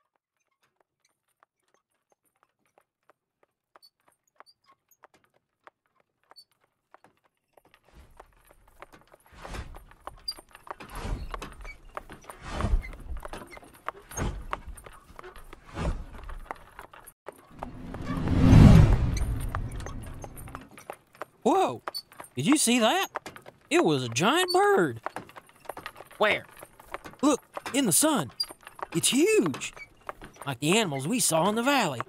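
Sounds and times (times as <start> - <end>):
hooves clip-clopping: 0.5 - 17.8, 20.1 - 32.0
cart wheels rumbling: 7.7 - 32.0.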